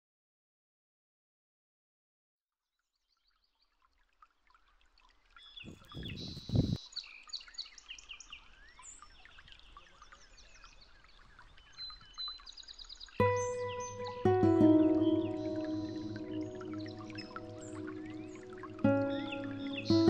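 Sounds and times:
small birds chirping: 5.4 - 20.0.

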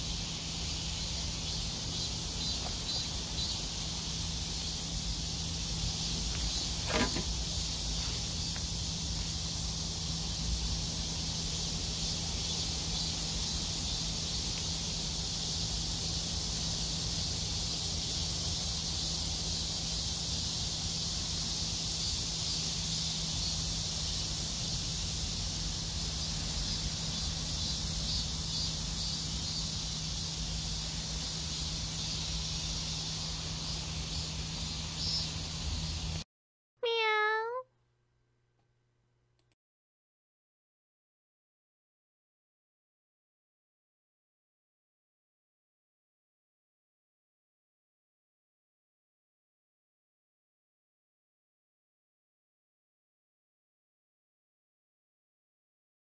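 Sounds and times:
high-pitched insect chorus: 0.0 - 36.2
steady low hum: 0.0 - 36.2.

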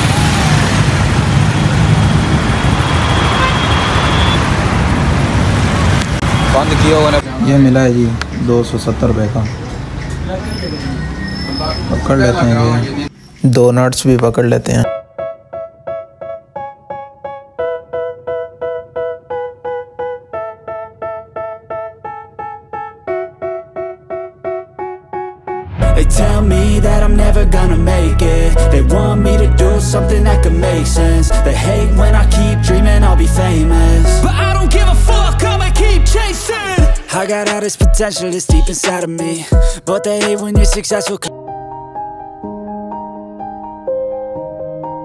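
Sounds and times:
busy road traffic: 0.0 - 14.3
keyboard striking chords: 14.8 - 45.0.

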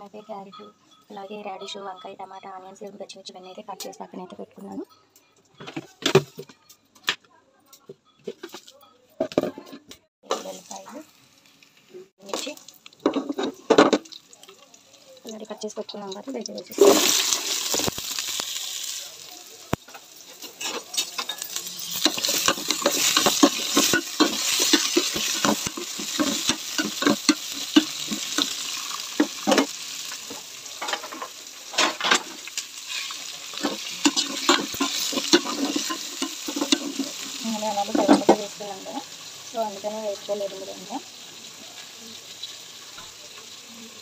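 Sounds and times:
vegetables sizzling in oil: 10.2 - 44.0.

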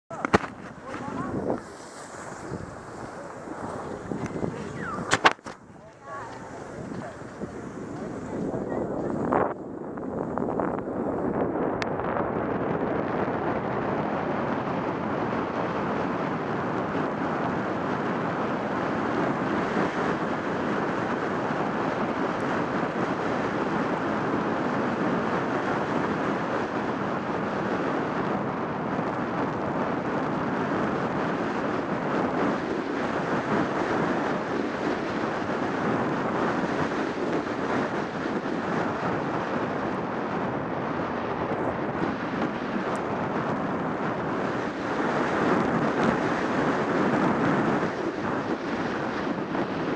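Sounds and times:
wind roaring over microphone: 0.1 - 49.9
skis hissing on packed snow: 0.8 - 5.1, 6.0 - 9.3.

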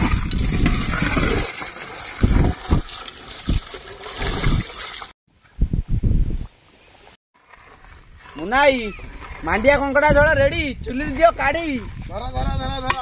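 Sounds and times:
water poured into frying pan: 0.0 - 5.1.

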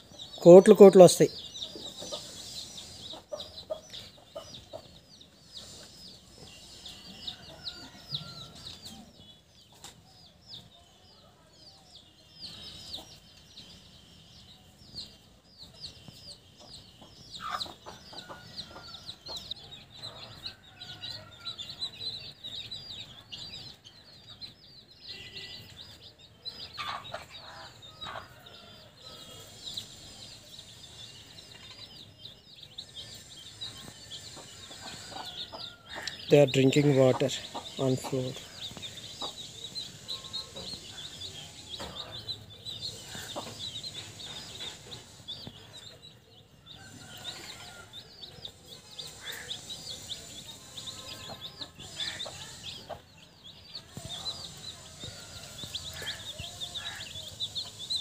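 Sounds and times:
chicks peeping: 0.0 - 58.0
hen clucking: 33.7 - 45.7, 49.1 - 53.1.

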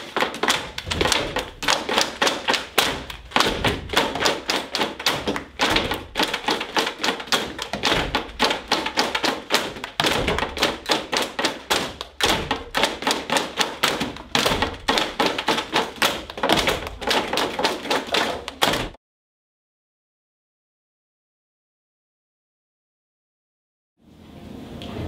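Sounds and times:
tapping on wooden desks: 0.0 - 19.0.

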